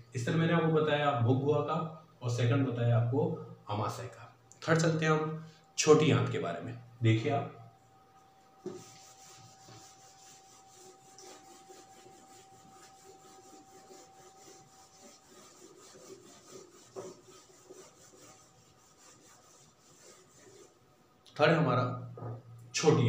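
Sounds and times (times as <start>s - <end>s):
duster rubbing whiteboard: 8.6s - 20.9s.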